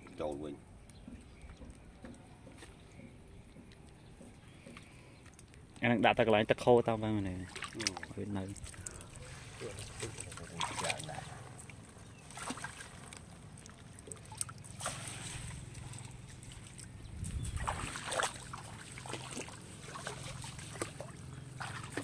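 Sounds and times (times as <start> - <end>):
steady low hum: 0.0 - 22.0
water sloshing and splashing: 6.8 - 22.0.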